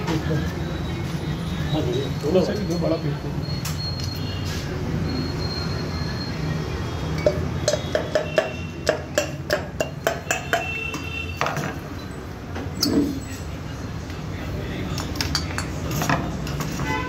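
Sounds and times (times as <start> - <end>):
pencil tapping metal cylinder: 7.2 - 10.9.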